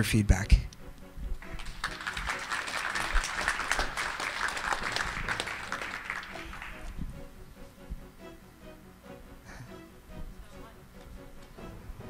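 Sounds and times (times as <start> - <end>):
audience applauding: 1.4 - 7.0.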